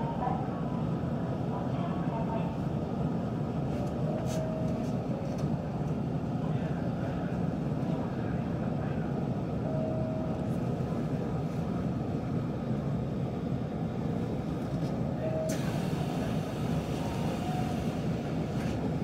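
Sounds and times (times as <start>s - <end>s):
low hum in train cab: 0.0s - 19.0s.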